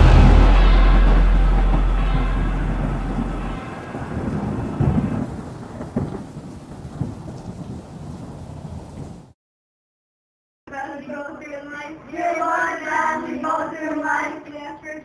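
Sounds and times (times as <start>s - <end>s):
echoing ice rink din: 0.0s - 5.1s
sharp knocks: 0.0s - 5.2s.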